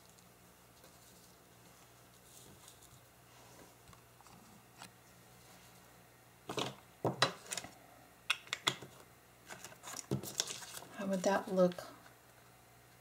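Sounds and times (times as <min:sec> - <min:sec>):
paper rustling and crinkling: 0:09.5 - 0:11.3.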